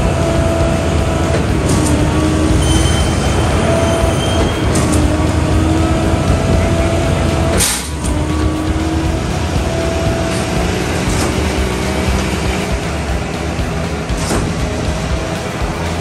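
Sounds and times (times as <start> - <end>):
diesel truck engine running: 0.0 - 16.0
air brakes hissing: 1.3 - 8.4.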